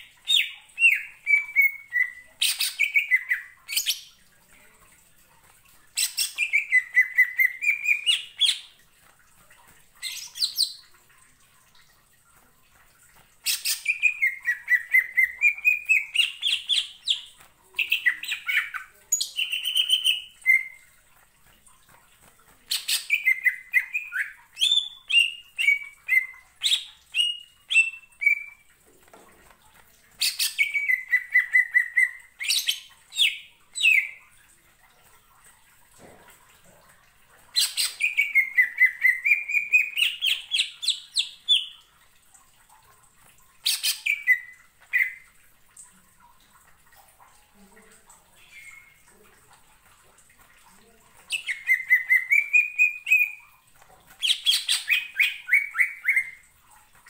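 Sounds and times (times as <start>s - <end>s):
bird chattering song: 51.3s - 53.4s.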